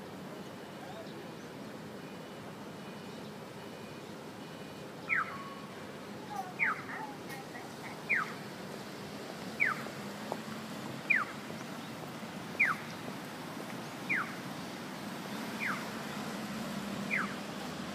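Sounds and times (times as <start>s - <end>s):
low street hum: 0.0s - 17.9s
electronic bird-like chirps: 5.1s - 5.6s, 9.6s - 9.8s, 12.6s - 12.9s, 15.6s - 15.8s, 17.1s - 17.4s
fainter lower answering chirp: 5.1s - 8.4s.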